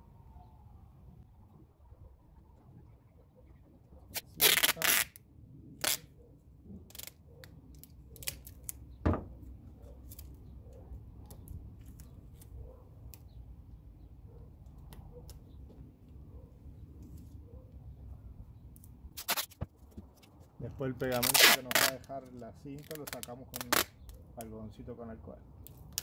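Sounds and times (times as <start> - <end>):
adhesive tape ripping: 4.1 - 5.2, 5.8 - 6.1, 6.9 - 8.8, 19.1 - 19.7, 21.0 - 24.2
tape clicks and crackles: 6.9 - 8.9, 10.0 - 13.4, 18.8 - 20.4, 21.1 - 24.6, 25.6 - 26.0.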